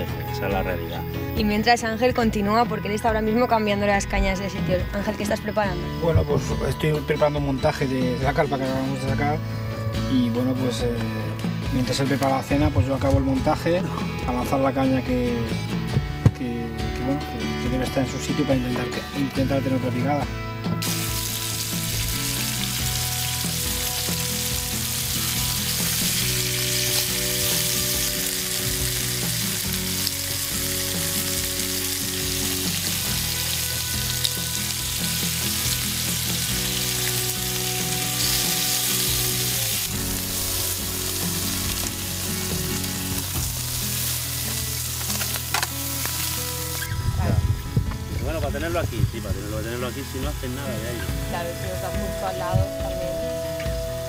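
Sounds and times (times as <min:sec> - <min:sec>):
chicken sizzling in grill pan: 0:20.8 - 0:47.0.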